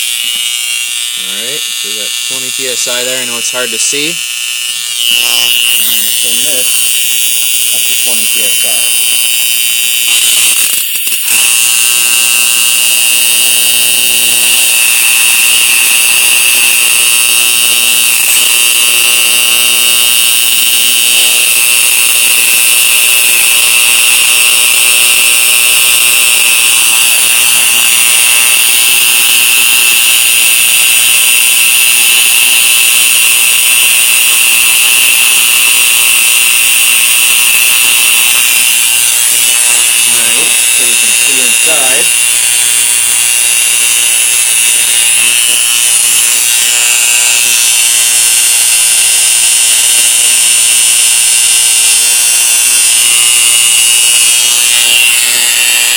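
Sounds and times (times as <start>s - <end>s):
high-pitched electrical buzz: 0.0s - 55.9s.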